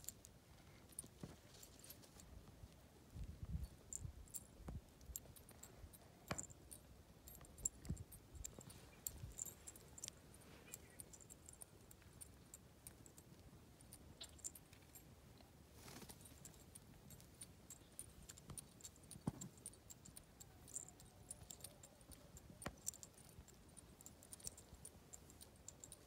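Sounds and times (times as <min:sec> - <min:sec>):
pigeons pecking on stony ground: 0:00.0 - 0:26.0.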